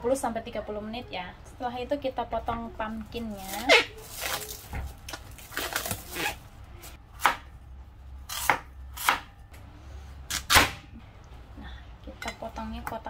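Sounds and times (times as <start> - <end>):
cling film crinkling: 3.4 - 6.4.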